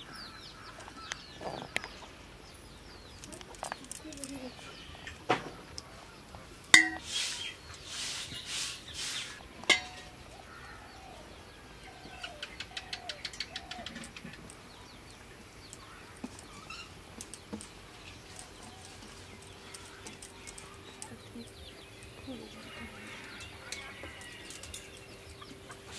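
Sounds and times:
steel cookware clanking: 0:06.7 - 0:07.2, 0:09.7 - 0:10.2
rice pattering into steel pot: 0:06.7 - 0:10.2
hens clucking: 0:18.3 - 0:25.9.

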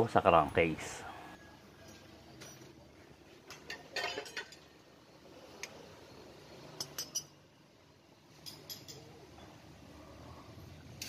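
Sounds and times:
metal parts clinking: 0:03.5 - 0:04.7.

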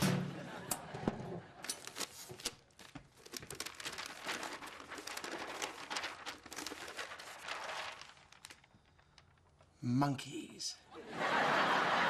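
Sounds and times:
paper rustling and crinkling: 0:01.6 - 0:09.8.

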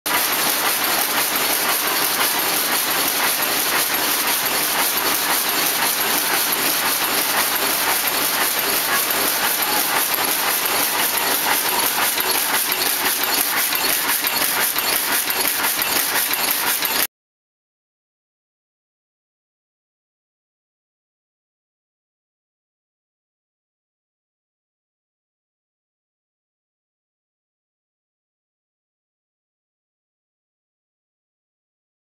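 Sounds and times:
weaving loom clattering: 0:00.1 - 0:17.1.

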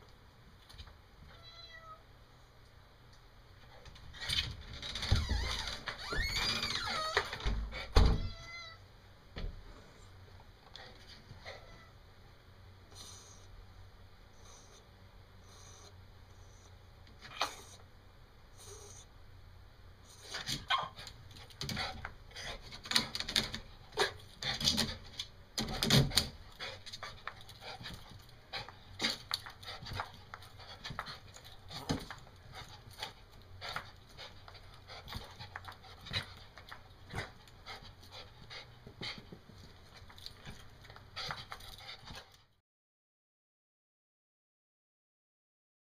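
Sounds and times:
paws thumping and clicking: 0:20.4 - 0:42.4
dog panting: 0:25.8 - 0:42.5.

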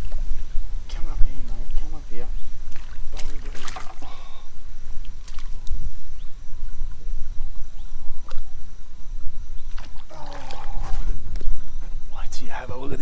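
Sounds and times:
water splashing: 0:01.0 - 0:05.7, 0:09.6 - 0:11.3.

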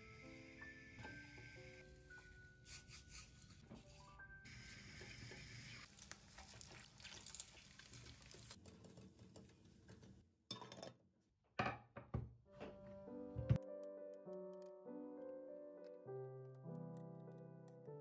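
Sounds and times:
sauce sizzling in a pan: 0:04.5 - 0:08.6
plates and board knocking on countertop: 0:11.6 - 0:12.8.

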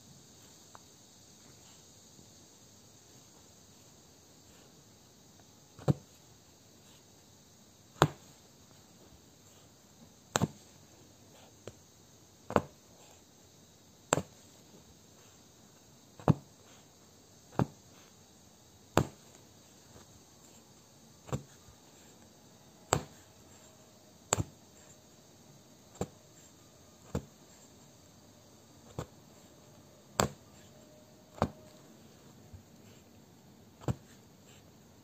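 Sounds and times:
punch needle tapping through fabric: 0:05.8 - 0:06.2, 0:07.9 - 0:08.4, 0:10.3 - 0:10.7, 0:12.5 - 0:13.2, 0:14.1 - 0:14.5, 0:16.2 - 0:16.8, 0:17.5 - 0:18.1, 0:18.9 - 0:19.4, 0:21.2 - 0:22.2, 0:22.9 - 0:23.7, 0:24.3 - 0:25.0, 0:25.9 - 0:27.8, 0:28.8 - 0:29.5, 0:30.2 - 0:31.8, 0:33.8 - 0:34.6.

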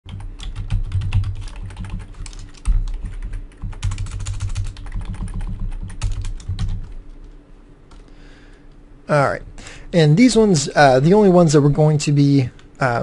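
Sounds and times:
keyboard typing: 0:00.1 - 0:07.0.

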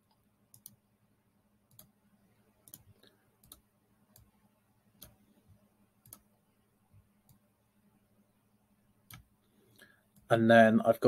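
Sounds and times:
faint computer mouse clicks: 0:00.1 - 0:00.8, 0:01.7 - 0:01.9, 0:02.6 - 0:04.3, 0:06.0 - 0:06.3, 0:09.1 - 0:10.3.

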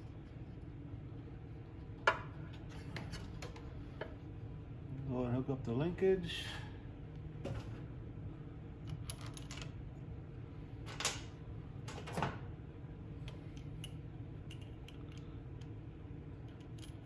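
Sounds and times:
steady low hum: 0:00.0 - 0:17.0
light clicks and taps of metal parts: 0:13.2 - 0:15.8, 0:16.4 - 0:17.0.

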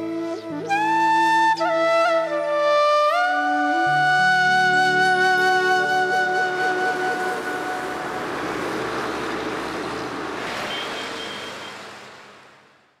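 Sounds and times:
flute melody: 0:00.0 - 0:09.0
truck driving by: 0:04.4 - 0:13.0
high beeps: 0:10.7 - 0:11.8.

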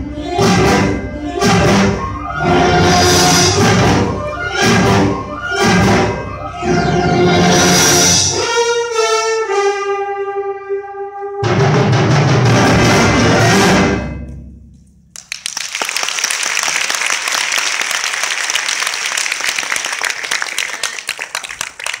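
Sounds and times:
audience applause: 0:15.2 - 0:22.0.

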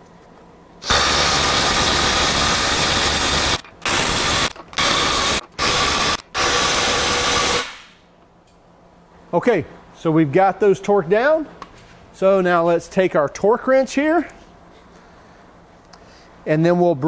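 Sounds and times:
impact wrench hammering nuts: 0:00.8 - 0:08.0.

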